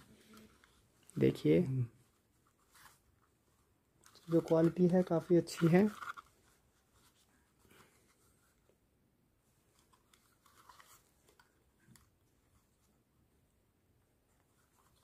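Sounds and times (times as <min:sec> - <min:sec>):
headphones rustling and knocking: 0:02.2 - 0:08.8.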